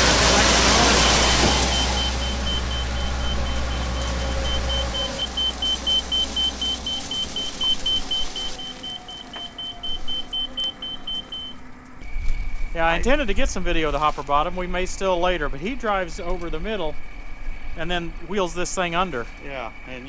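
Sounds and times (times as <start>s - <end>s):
grain auger running: 0.0s - 11.5s
low drive hum: 0.0s - 20.0s
rapid electronic beeps: 0.7s - 11.6s.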